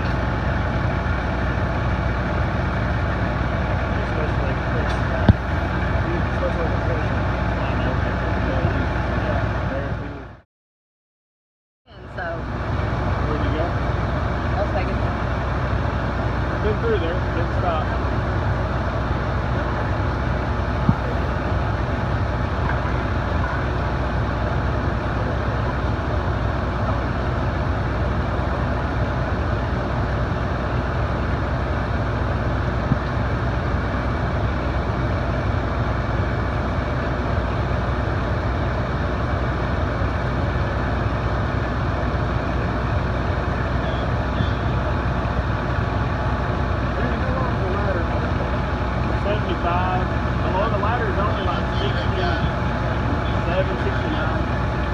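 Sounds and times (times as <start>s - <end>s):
diesel engine droning: 0.0s - 10.4s, 11.9s - 54.9s.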